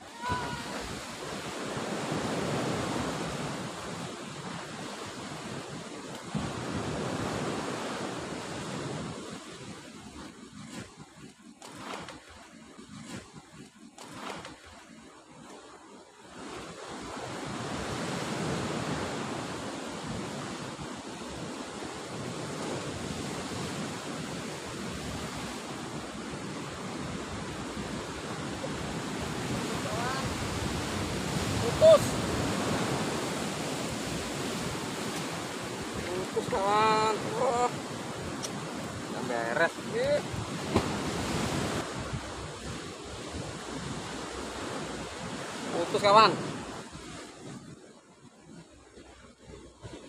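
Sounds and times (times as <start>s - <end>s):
wind on microphone: 0.0s - 11.0s, 17.1s - 45.6s
sea surf washing on rocks: 0.0s - 47.7s.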